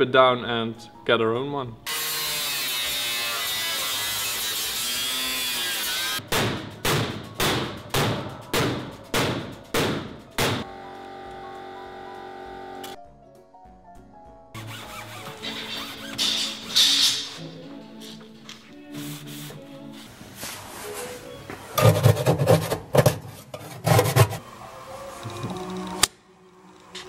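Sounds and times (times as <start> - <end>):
background music: 0.0 - 27.0
angle grinder cutting sheet metal: 1.9 - 6.2, 21.8 - 24.4.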